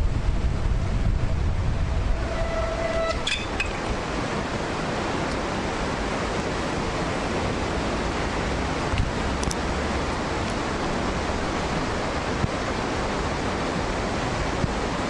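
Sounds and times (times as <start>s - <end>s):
uneven low rumble: 0.0s - 4.0s
wind noise on microphone: 0.0s - 15.0s.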